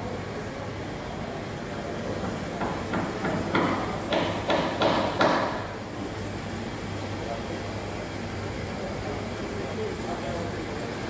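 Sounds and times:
low machine hum: 0:00.0 - 0:11.0
sharp hammering knocks: 0:02.2 - 0:05.8.

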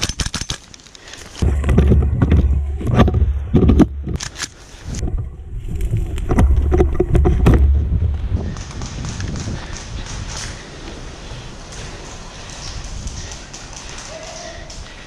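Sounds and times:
camera handling rumble: 0:00.0 - 0:10.5
sharp clicks: 0:08.5 - 0:10.6.

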